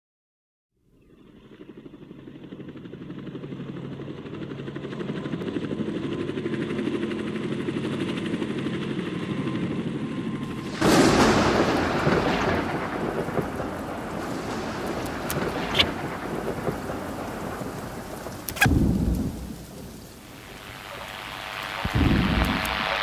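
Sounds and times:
rain-like hiss: 10.5s - 23.0s
thunder crash: 10.5s - 23.0s
low rapidly pulsing hum: 17.0s - 23.0s.

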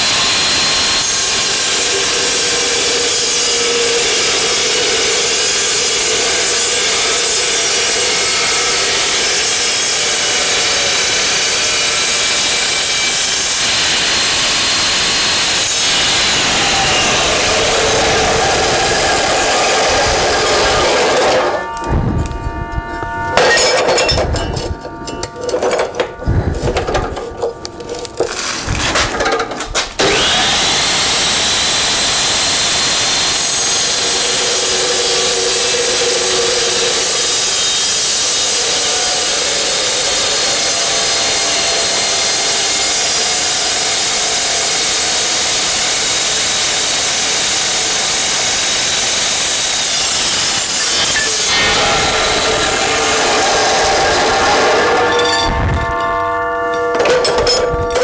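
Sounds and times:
chop saw cutting steel: 0.0s - 22.3s, 23.0s - 56.2s
steel pieces knocking and ringing: 23.3s - 28.3s, 54.4s - 58.0s.

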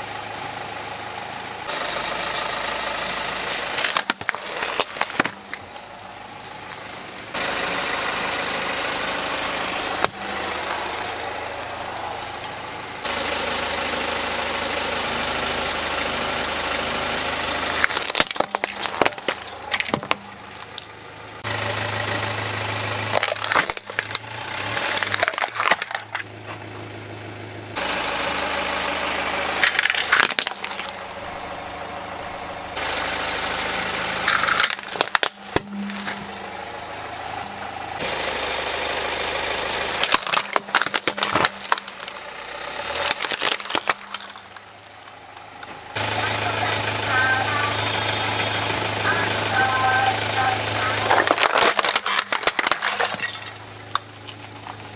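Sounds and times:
car engine idling: 0.0s - 54.9s
objects cracking under tyre: 3.4s - 7.4s, 9.9s - 11.2s, 17.5s - 21.0s, 23.0s - 26.9s, 29.5s - 31.3s, 34.2s - 38.1s, 39.9s - 46.0s, 50.9s - 54.9s.

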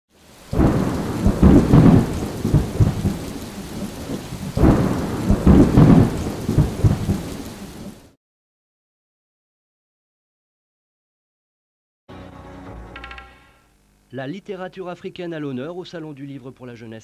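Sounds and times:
thunder rolling: 0.5s - 8.0s.

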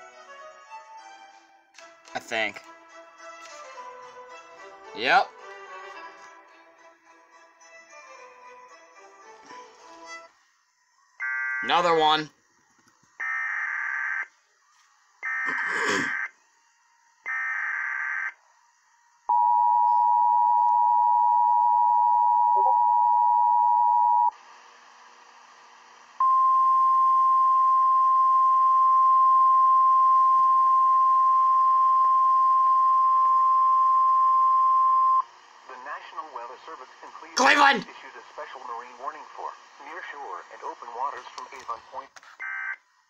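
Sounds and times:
two-tone attention signal: 19.3s - 24.3s
steady weather-radio tone: 22.0s - 24.3s, 26.2s - 42.1s.

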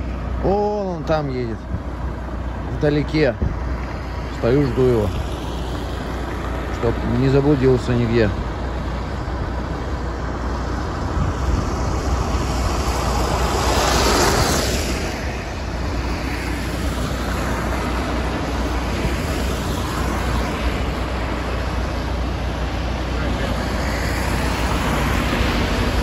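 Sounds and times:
engine noise: 0.0s - 26.0s
vehicle swishing past: 11.2s - 22.0s
tyre hiss on wet road: 11.7s - 26.0s.

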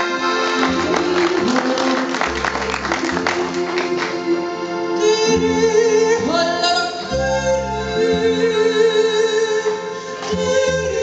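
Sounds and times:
accordion: 0.0s - 11.0s.

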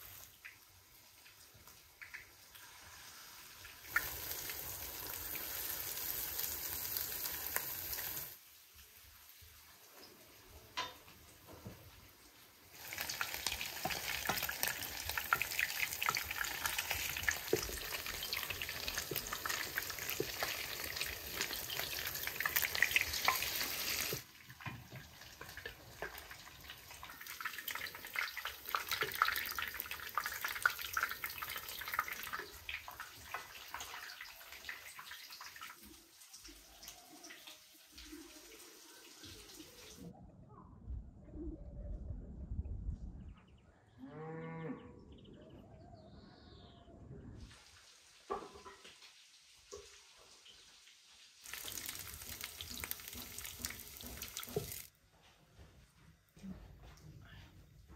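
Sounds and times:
food sizzling in hot oil: 0.0s - 11.1s, 12.7s - 40.0s, 47.4s - 54.9s.

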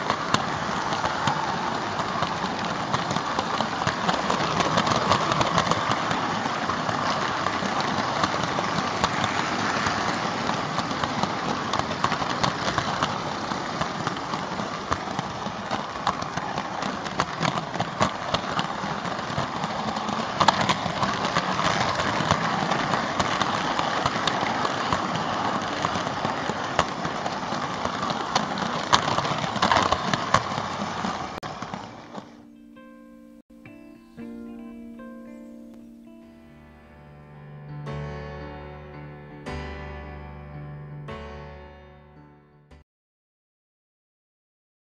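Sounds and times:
model train motor whirring: 0.0s - 32.4s
wheels clicking over rail joints: 0.0s - 32.7s.

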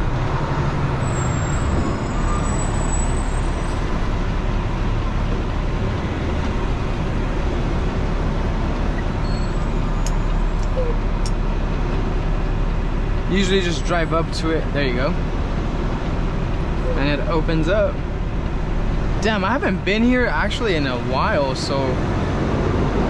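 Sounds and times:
diesel engine hum: 0.0s - 23.0s
road noise: 0.0s - 23.0s.

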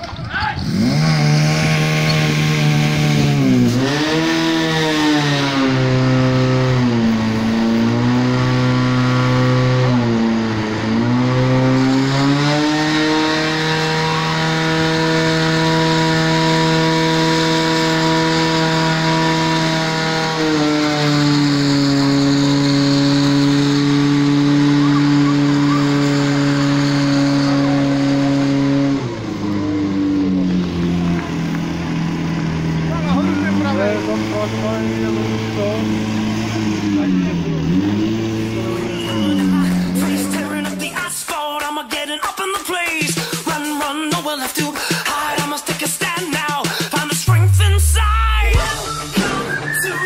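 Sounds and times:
pump engine running at high revs: 0.0s - 41.1s, 46.6s - 48.7s.

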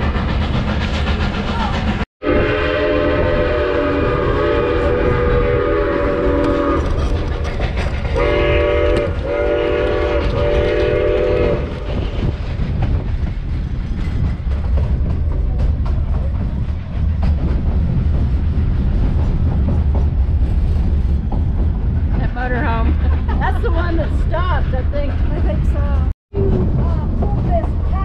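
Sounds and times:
train rumble: 0.0s - 28.0s
steam locomotive whistle: 2.2s - 7.0s, 8.2s - 11.8s
wheel clatter: 6.4s - 11.0s.

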